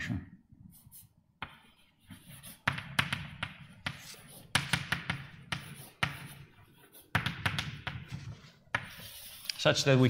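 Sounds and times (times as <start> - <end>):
writing taps on a board: 1.4 - 6.4, 7.1 - 9.0.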